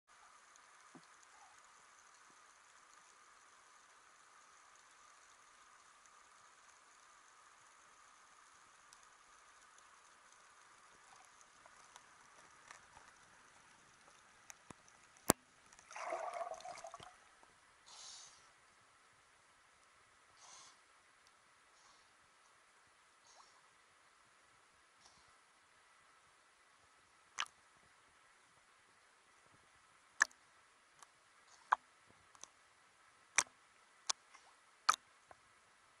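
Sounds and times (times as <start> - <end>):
faint underwater hiss: 0.1 - 36.0
small clicks: 0.3 - 15.9, 31.0 - 32.6
water bubbling and gurgling: 15.8 - 17.4.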